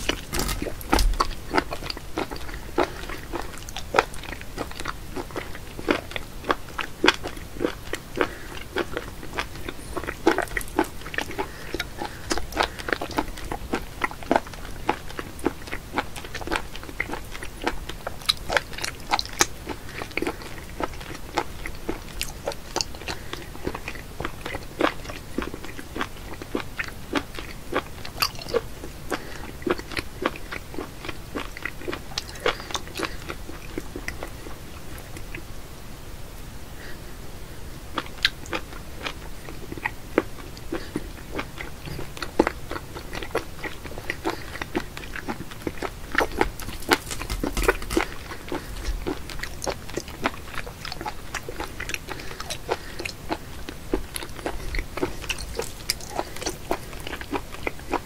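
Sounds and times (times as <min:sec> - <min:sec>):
person chewing with mouth clicks: 0:00.0 - 0:35.5, 0:37.9 - 0:58.0.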